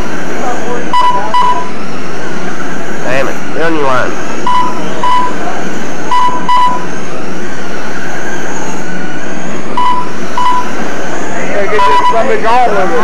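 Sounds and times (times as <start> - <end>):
rc trucks running: 0.0 - 13.0
short electronic beeps: 0.9 - 1.8, 4.4 - 5.4, 6.1 - 7.0, 9.7 - 10.8, 11.8 - 12.3.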